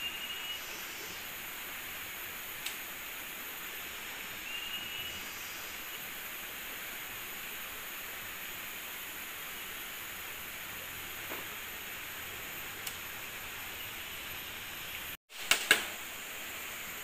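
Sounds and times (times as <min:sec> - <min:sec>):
thin high whistle: 0:00.0 - 0:00.8, 0:04.4 - 0:05.4
jungle ambience hiss: 0:00.0 - 0:17.0.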